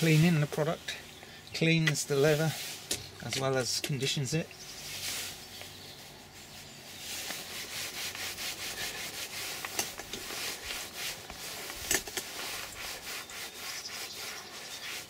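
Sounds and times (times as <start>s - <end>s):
cloth rubbing on leather: 4.8s - 15.0s.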